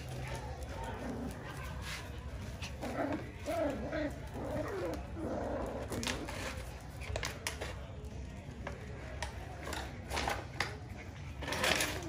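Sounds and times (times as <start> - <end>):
puppies scuffling: 0.0 - 12.0
puppy paws clicking on concrete: 0.0 - 12.0.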